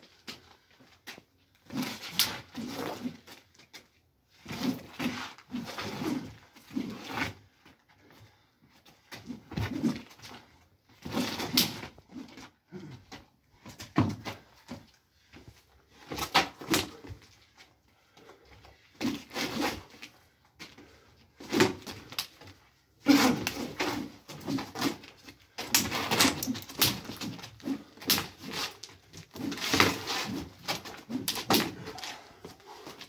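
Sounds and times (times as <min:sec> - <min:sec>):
fighting sticks clacking: 0:23.1 - 0:33.0.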